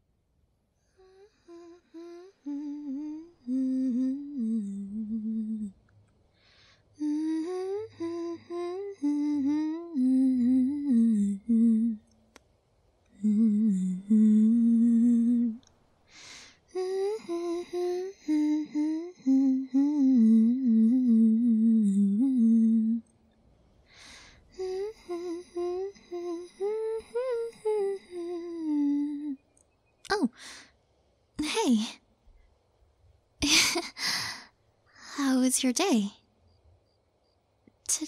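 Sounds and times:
woman humming a tune: 1.0s - 5.8s, 7.0s - 12.1s, 13.2s - 15.6s, 16.7s - 23.1s, 24.5s - 29.4s, 30.1s - 30.4s
woman breathy vocal exhale: 16.1s - 16.9s.

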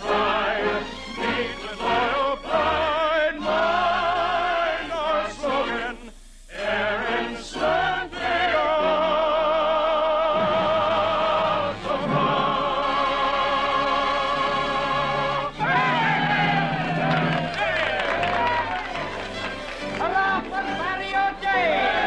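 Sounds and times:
orchestra playing: 0.0s - 4.5s, 13.9s - 22.0s
operetta singing: 0.0s - 22.0s.

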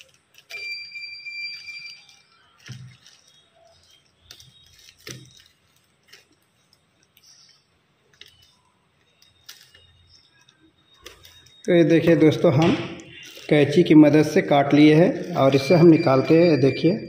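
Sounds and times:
scissors snipping plastic bag: 0.0s - 0.9s, 1.5s - 11.6s, 12.6s - 13.7s.

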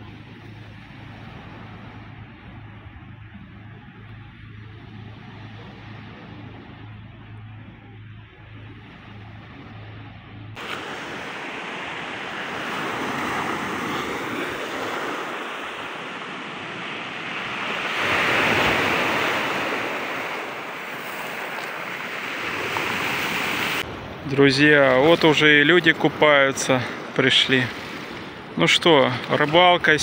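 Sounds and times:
faint low pulsing hum: 0.0s - 10.6s
sea waves washing on beach: 0.0s - 30.0s.

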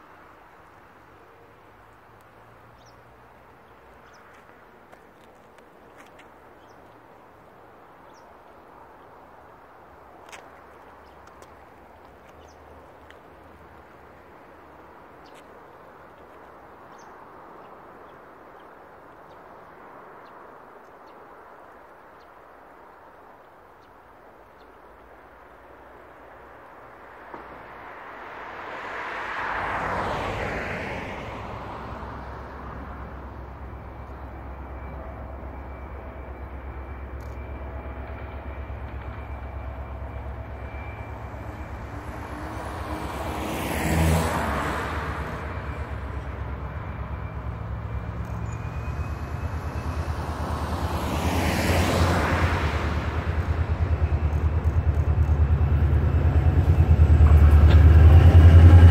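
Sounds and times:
passing road traffic: 0.0s - 58.9s
diesel locomotive engine drone: 23.5s - 58.9s.

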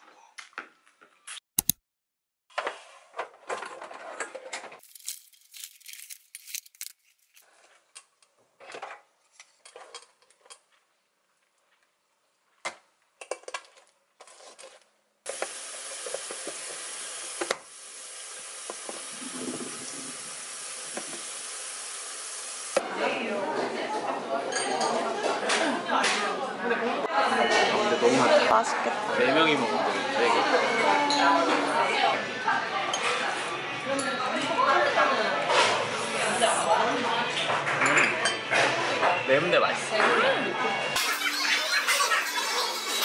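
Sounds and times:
sharp click: 1.6s - 1.8s
plastic rustling: 4.8s - 7.5s.

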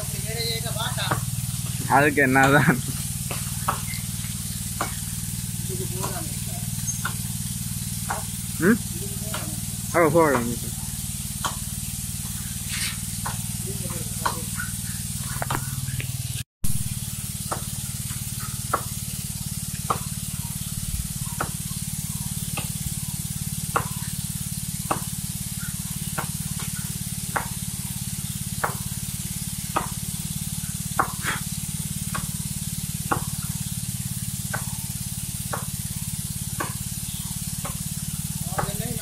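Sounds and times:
axe chopping wood: 3.3s - 4.0s, 4.8s - 5.0s, 8.1s - 8.3s, 17.5s - 18.9s, 19.9s - 20.1s, 21.4s - 21.6s, 23.7s - 24.1s, 24.9s - 25.1s, 26.2s - 27.6s, 28.6s - 28.8s, 29.7s - 30.0s, 31.0s - 31.4s, 33.1s - 33.5s, 34.5s - 34.7s, 35.5s - 35.7s, 36.6s - 36.9s, 37.6s - 37.8s, 38.5s - 39.0s.

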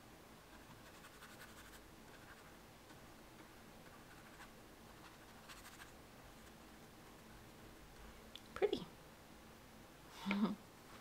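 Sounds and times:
paintbrush brushing on paper: 0.5s - 2.6s, 3.8s - 6.7s.

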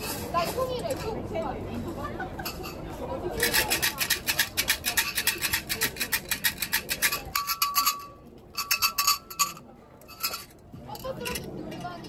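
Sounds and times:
sticks rattling in metal canister: 3.4s - 11.9s.

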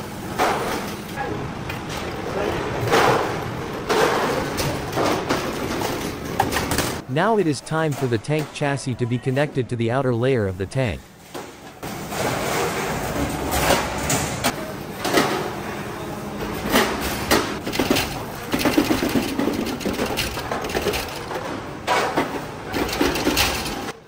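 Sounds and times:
steady machine noise: 17.6s - 21.4s.

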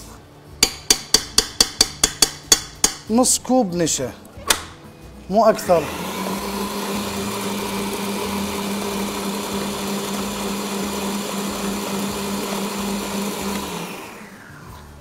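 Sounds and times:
stand mixer motor hum: 5.7s - 14.6s.

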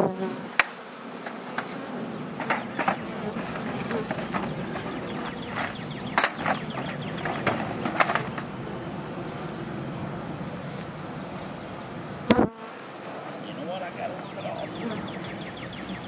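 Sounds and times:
bees buzzing: 0.0s - 16.0s
wooden knocks and clatters: 2.4s - 8.5s.

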